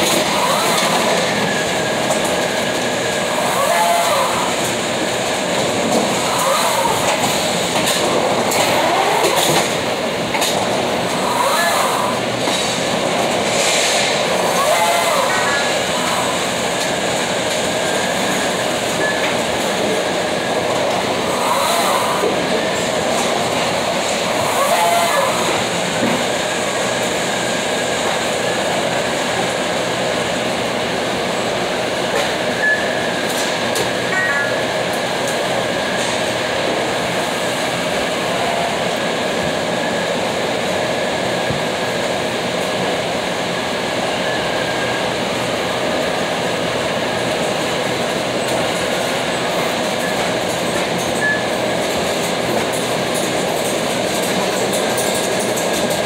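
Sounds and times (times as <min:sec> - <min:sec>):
mechanical rumble and clatter: 0:00.0 - 0:32.5.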